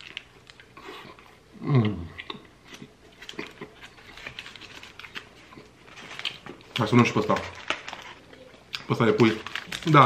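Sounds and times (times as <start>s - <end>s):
person chewing: 0.0s - 6.8s.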